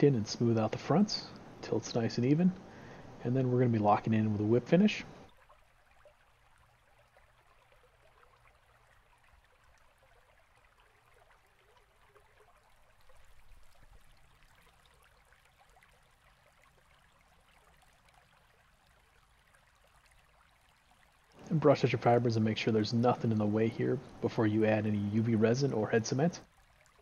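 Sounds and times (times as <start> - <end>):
faint room tone hiss: 0.0 - 11.4, 16.8 - 27.0.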